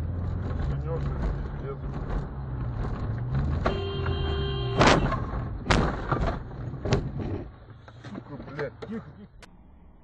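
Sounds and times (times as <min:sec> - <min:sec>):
car engine drone and road noise: 0:00.0 - 0:10.0
car horn: 0:03.6 - 0:05.3.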